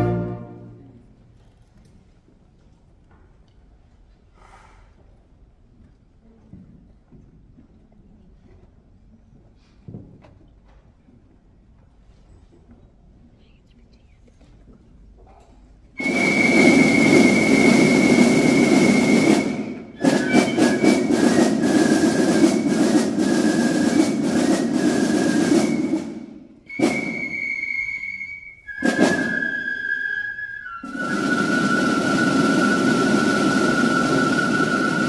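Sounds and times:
high held melody note: 0.0 - 0.8
outdoor band music: 16.0 - 27.4, 28.8 - 29.4
heavy drumming: 16.0 - 35.0.

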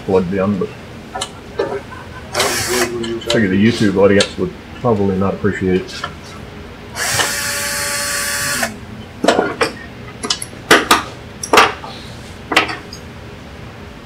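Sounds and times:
cordless drill whirring: 2.4 - 2.9, 7.0 - 8.8.

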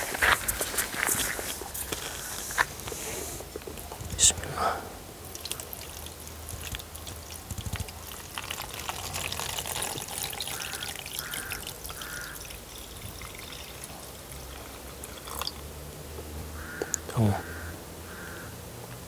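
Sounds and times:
liquid pouring and splashing: 5.2 - 15.7.

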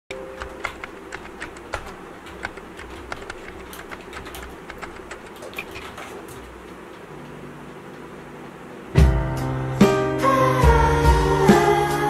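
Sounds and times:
computer keyboard typing: 0.1 - 6.6
low steady hum: 0.1 - 12.0.

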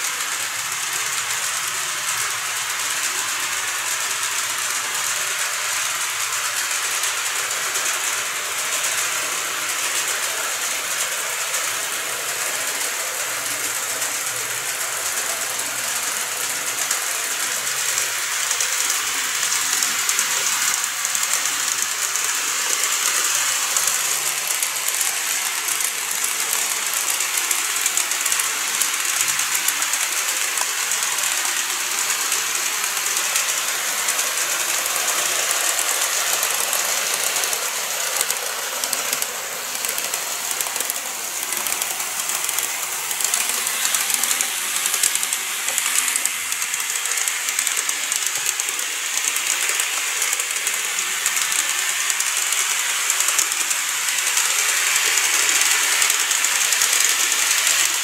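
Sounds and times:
model train motors whirring: 0.0 - 58.0
fine clicking of wheels: 18.8 - 58.0.

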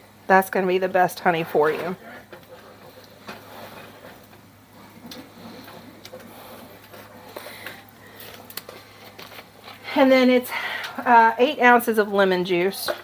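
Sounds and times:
wooden spoon stirring thick syrup: 1.1 - 9.8.

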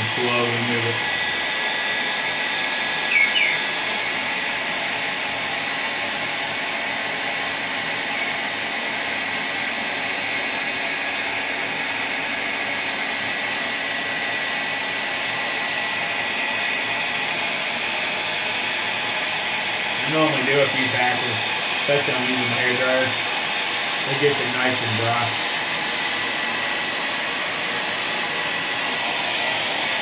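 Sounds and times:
hair dryer blowing: 0.0 - 30.0.

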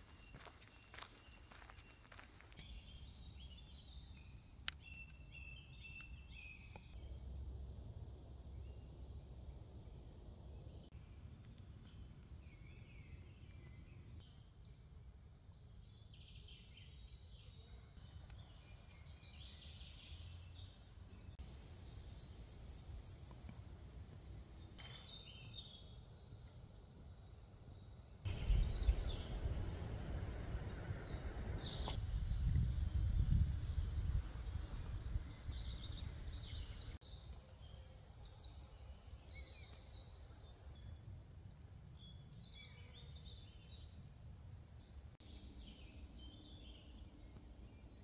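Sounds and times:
songbirds chirping and trilling: 0.0 - 7.1, 8.5 - 48.0
low steady rumble: 28.3 - 37.0.

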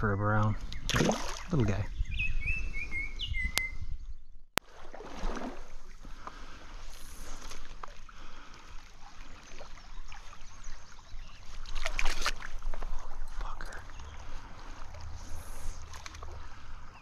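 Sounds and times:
bird singing: 0.0 - 4.5, 9.2 - 11.7, 13.0 - 14.8, 15.7 - 17.0
wading in stream water: 0.9 - 1.7, 4.6 - 17.0.

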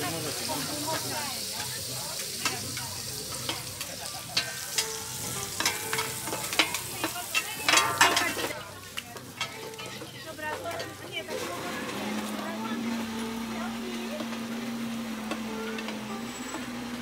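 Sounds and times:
shrimp sizzling in oil: 0.0 - 17.0
metal spatulas scraping pan: 0.1 - 8.6, 9.4 - 13.4.

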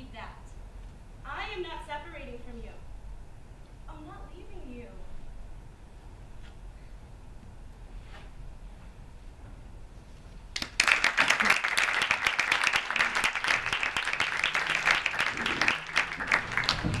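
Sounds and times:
audience applauding: 10.6 - 17.0.

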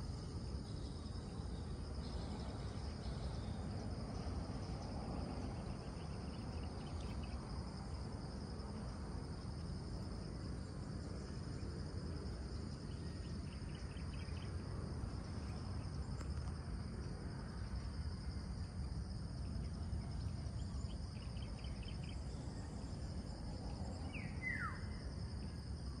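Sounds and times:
insect chorus drone: 0.0 - 26.0
low background rumble: 0.0 - 26.0.

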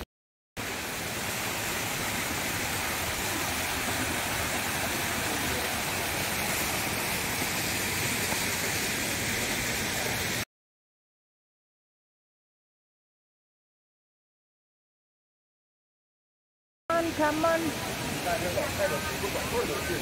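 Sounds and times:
waterfall splashing into stream: 0.6 - 10.4.

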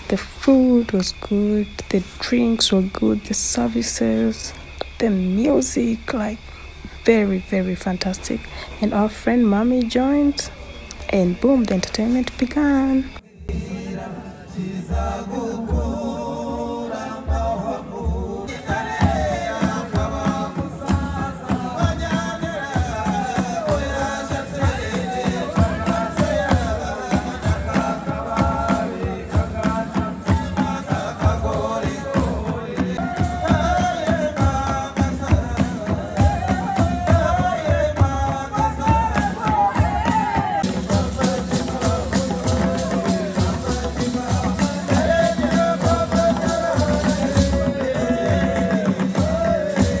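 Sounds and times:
group chanting and singing: 0.0 - 50.0
wavering sung melody: 0.0 - 50.0
deep drum beat: 17.3 - 50.0.

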